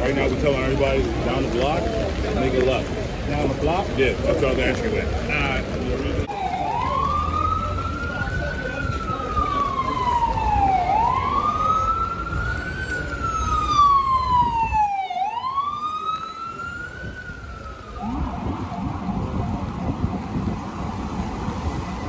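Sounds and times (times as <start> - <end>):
traffic noise: 0.0 - 22.0
emergency siren wailing: 6.2 - 22.0.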